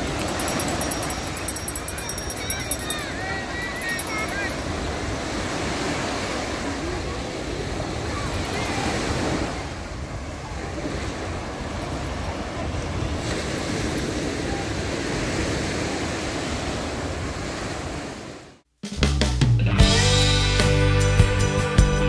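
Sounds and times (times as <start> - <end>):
waves washing up a beach: 0.0 - 18.6
music: 18.8 - 22.0.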